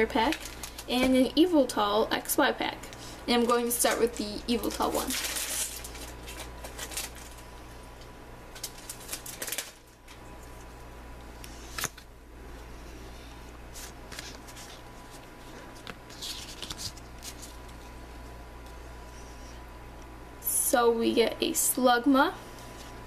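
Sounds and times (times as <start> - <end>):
foil wrapper crinkling: 0.0 - 1.2, 3.4 - 7.5, 8.5 - 10.6, 13.7 - 17.9.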